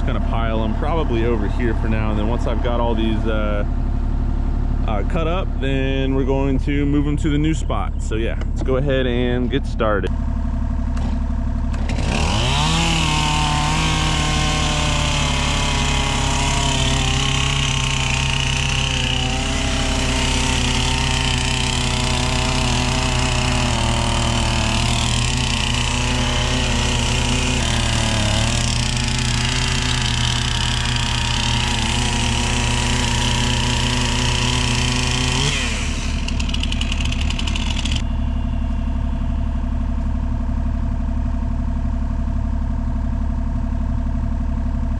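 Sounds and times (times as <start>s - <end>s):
chainsaw revving and cutting wood: 0.0s - 3.8s, 10.9s - 39.2s
low engine rumble: 0.0s - 44.9s.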